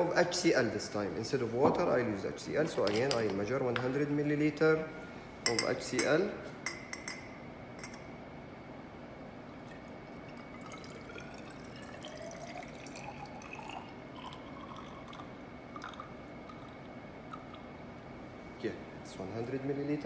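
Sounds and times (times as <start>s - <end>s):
liquid pouring into glass cylinder: 9.4s - 17.7s.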